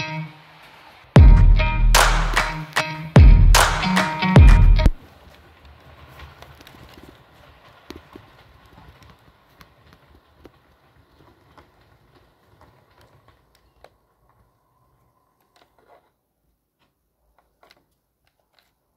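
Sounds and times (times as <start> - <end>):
wheels clicking over rail joints: 0.0 - 1.2, 5.0 - 18.9.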